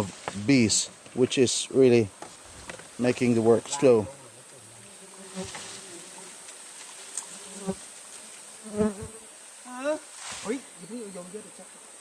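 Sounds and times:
bees buzzing: 2.4 - 10.0.

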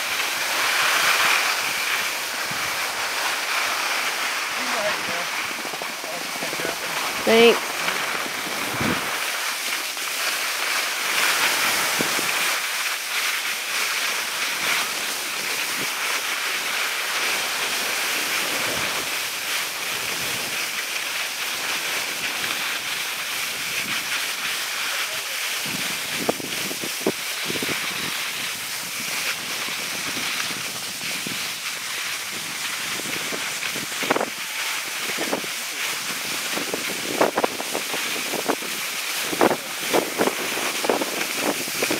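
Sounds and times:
skis hissing over snow: 0.0 - 41.9
wind on microphone: 1.6 - 3.2, 4.7 - 9.4, 25.6 - 41.9.

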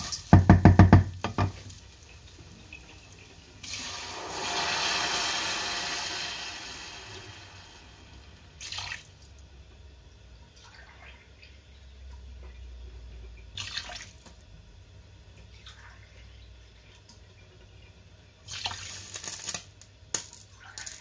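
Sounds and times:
sizzling bursts: 1.3 - 9.2.

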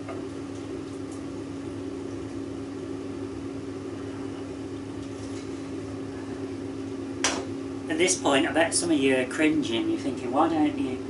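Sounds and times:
oven fan humming: 0.0 - 11.0.

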